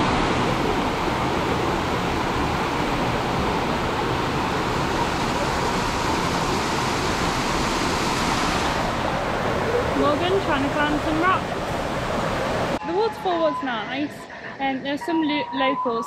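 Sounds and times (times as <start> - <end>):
waterfall rushing over rock: 0.0 - 12.8.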